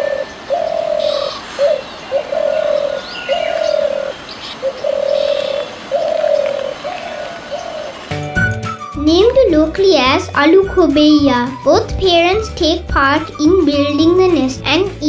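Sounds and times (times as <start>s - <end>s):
dove cooing: 0.0s - 8.2s.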